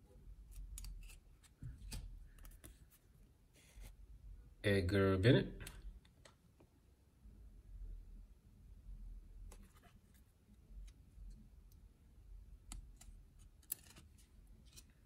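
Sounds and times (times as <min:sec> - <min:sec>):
cards being flipped and slid: 0:12.7 - 0:15.0.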